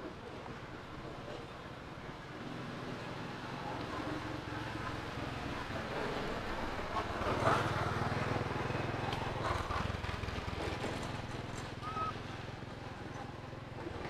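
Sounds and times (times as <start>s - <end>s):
engine running: 0.0s - 14.0s.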